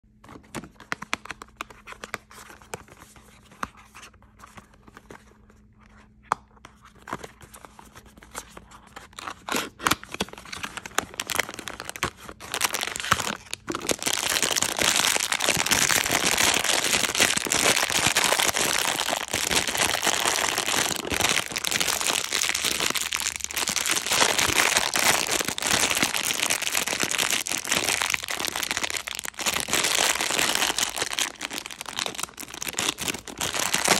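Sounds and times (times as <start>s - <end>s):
foil wrapper crinkling: 9.1s - 33.9s.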